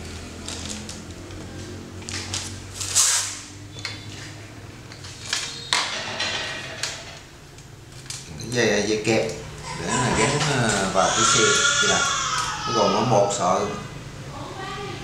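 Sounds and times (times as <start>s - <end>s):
plastic bag crinkling: 0.3s - 1.4s.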